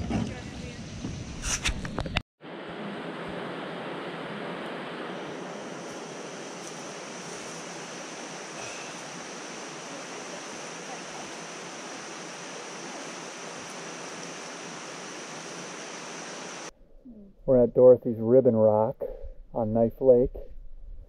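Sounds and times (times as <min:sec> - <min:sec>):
faint high whine: 0:02.4 - 0:18.4.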